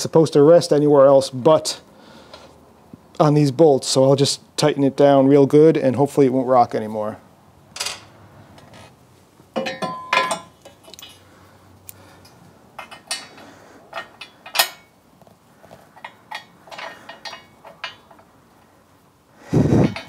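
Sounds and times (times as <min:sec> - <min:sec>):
metal bolts clinking in steel tray: 0:09.6 - 0:11.2, 0:12.8 - 0:14.9, 0:16.0 - 0:18.2.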